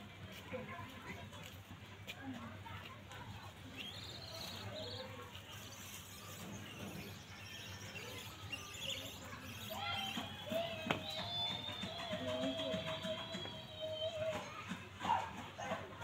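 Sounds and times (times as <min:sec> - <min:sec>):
faint outdoor background: 0:00.0 - 0:16.0
small birds chirping: 0:00.5 - 0:14.7.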